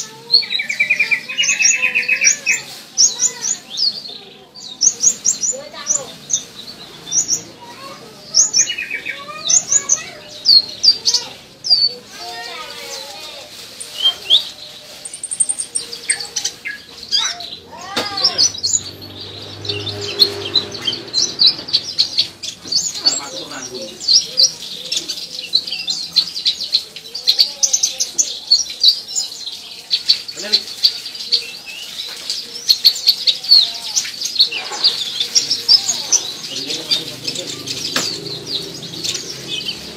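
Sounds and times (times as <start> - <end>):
bird chirping: 12.9 - 39.9.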